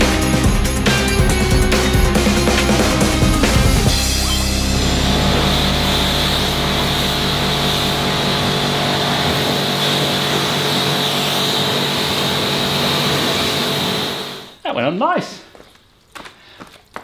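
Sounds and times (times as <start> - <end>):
pressure washer pump drone: 0.0 - 14.6
water jet hissing on car: 4.9 - 14.4.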